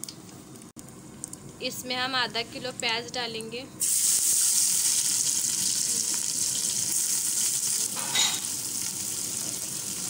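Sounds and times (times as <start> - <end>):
onions sizzling in hot oil: 3.8 - 10.0.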